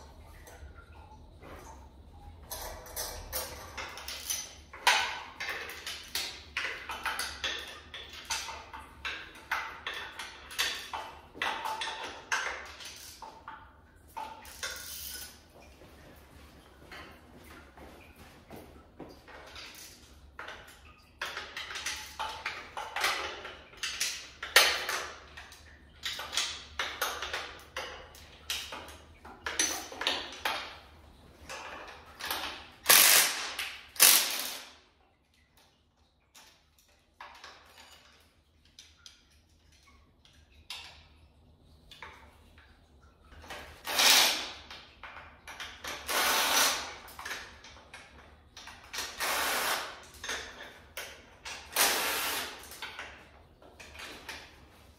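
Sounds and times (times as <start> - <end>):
hand tools clicking and clanking: 2.4 - 15.7, 31.4 - 34.7, 43.4 - 54.9.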